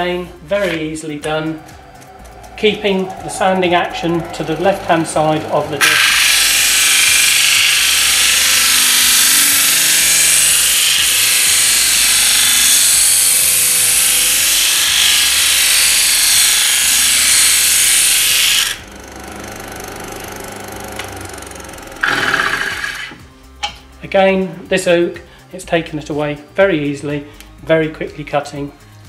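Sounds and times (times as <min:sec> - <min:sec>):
disc sander grinding wood: 0:00.0 - 0:23.3
motor humming: 0:00.0 - 0:23.6.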